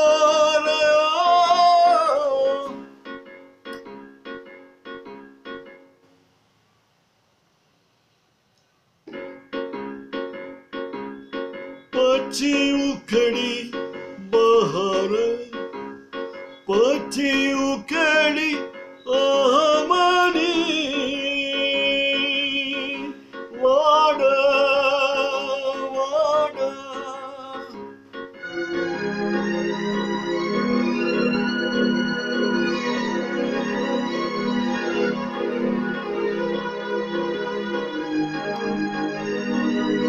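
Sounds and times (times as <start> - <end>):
man singing: 0.0 - 2.9, 12.0 - 15.8, 16.7 - 27.9
electronic keyboard: 0.0 - 6.7, 9.0 - 40.0.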